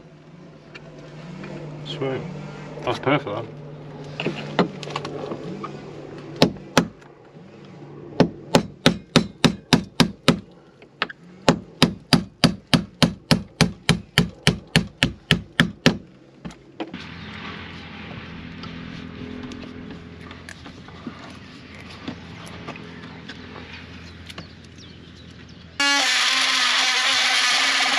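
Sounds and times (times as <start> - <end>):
steady rushing noise: 16.8 - 23.8.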